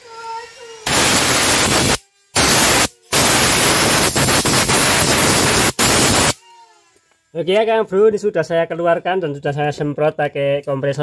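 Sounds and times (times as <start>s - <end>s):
compressed air gun hissing: 0.6s - 6.4s.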